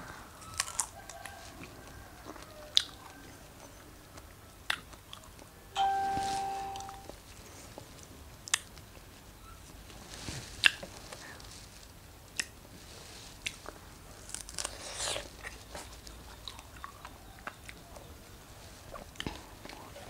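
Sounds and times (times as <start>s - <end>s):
chewing: 0.4s - 5.5s, 13.4s - 18.2s, 18.8s - 20.0s
strawberries being bitten: 13.4s - 17.8s.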